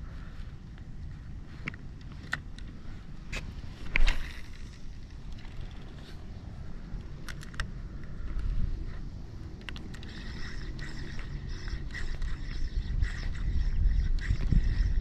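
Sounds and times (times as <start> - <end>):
low wind rumble: 0.0 - 15.0
fishing reel clicks: 9.6 - 15.0.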